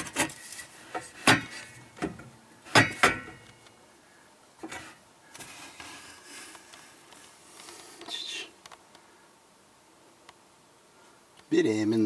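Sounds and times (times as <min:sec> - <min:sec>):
faint background noise: 0:00.0 - 0:12.0.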